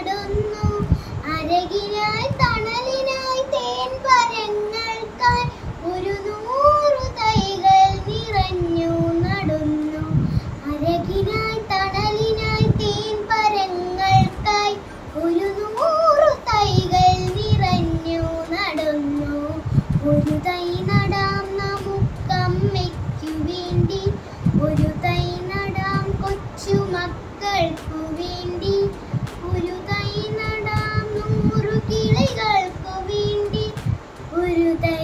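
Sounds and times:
girl singing a poem: 0:00.0 - 0:35.0.

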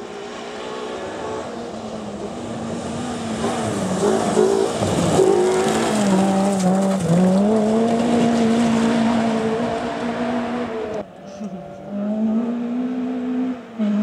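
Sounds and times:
rally car engine revving: 0:00.0 - 0:14.0
gravel clattering from tyres: 0:03.4 - 0:09.2.

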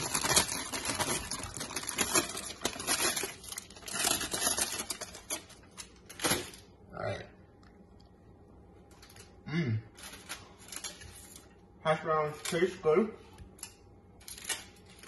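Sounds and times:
aluminium foil crinkling: 0:00.0 - 0:06.7, 0:08.9 - 0:11.6, 0:13.5 - 0:15.0.

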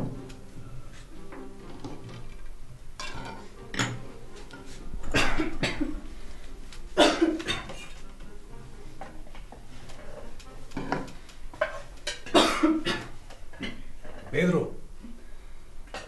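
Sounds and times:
dishes and spoon clinking: 0:01.4 - 0:05.9, 0:09.9 - 0:13.8.

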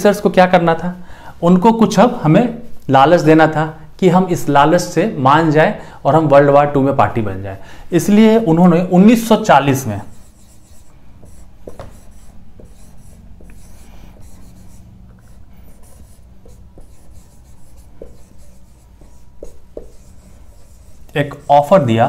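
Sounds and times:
marker squeaking on whiteboard: 0:09.7 - 0:21.9
low steady hum: 0:09.9 - 0:22.0.

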